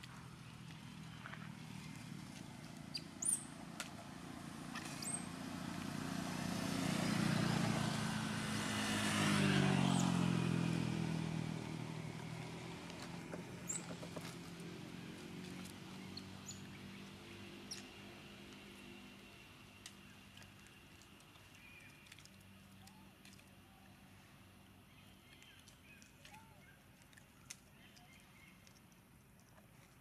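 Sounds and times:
vehicle engine passing by: 0:00.1 - 0:20.8.

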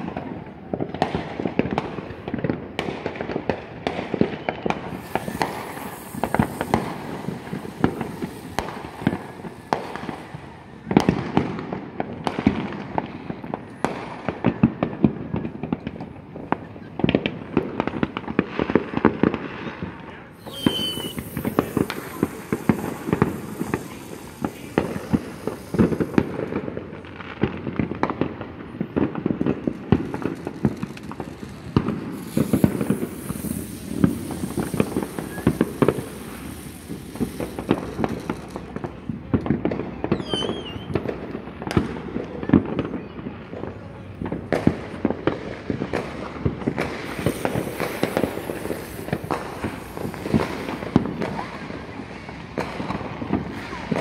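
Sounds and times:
fireworks crackling and banging: 0:00.0 - 0:54.0
wavering firework whistle: 0:03.2 - 0:12.4, 0:19.2 - 0:27.1, 0:29.9 - 0:38.9, 0:39.6 - 0:41.9, 0:46.7 - 0:52.0.

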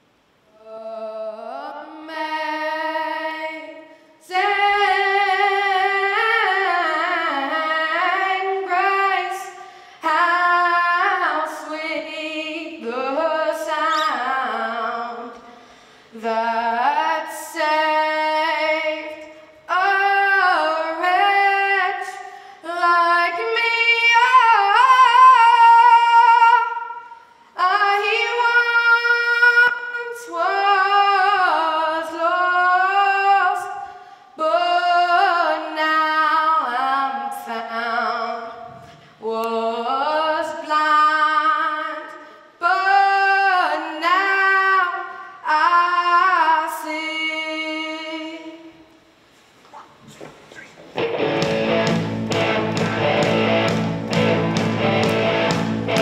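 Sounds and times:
person singing unaccompanied: 0:00.6 - 0:15.4.

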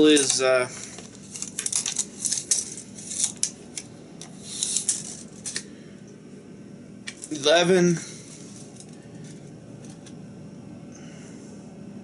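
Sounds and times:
tape measure clicks and scrapes: 0:01.2 - 0:05.6.

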